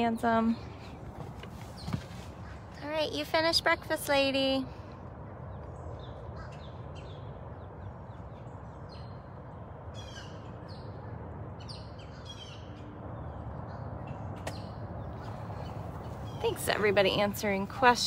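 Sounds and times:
low outdoor rumble: 0.0 - 18.0
birds calling: 0.6 - 2.9, 9.9 - 18.0.

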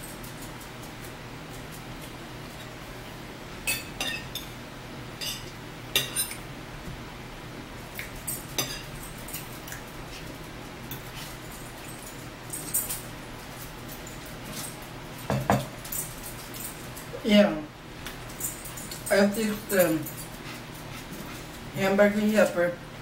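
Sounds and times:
steady low hum: 0.0 - 23.0
forks clinking on plates: 3.6 - 4.5, 5.2 - 6.4, 8.2 - 9.8, 13.9 - 17.0, 18.3 - 20.6.

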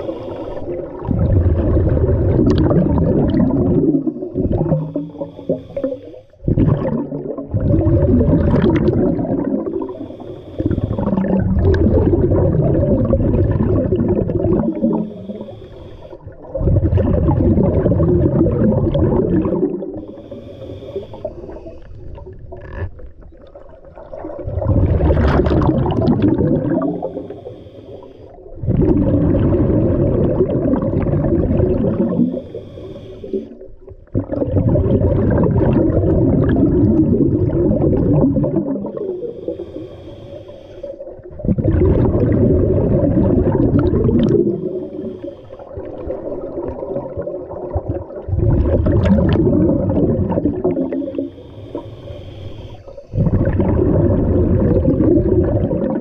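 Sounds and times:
diver inhaling through regulator: 0.0 - 1.1, 4.0 - 7.8, 9.6 - 12.3, 14.2 - 16.6, 19.4 - 22.4, 25.4 - 29.0, 30.7 - 34.0, 38.2 - 41.4, 42.8 - 46.2, 50.6 - 54.3
exhaled bubbles underwater: 0.0 - 56.0.

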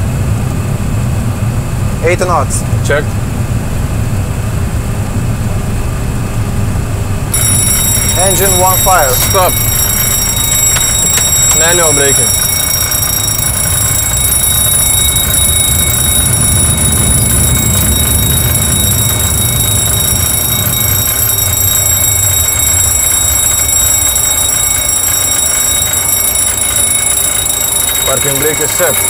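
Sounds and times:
fire warning bell ringing: 7.3 - 29.0.

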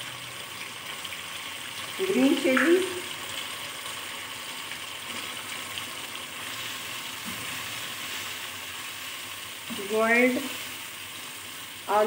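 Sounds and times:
food sizzling in oil: 0.0 - 12.0
spatula stirring in a pan: 3.5 - 11.9.

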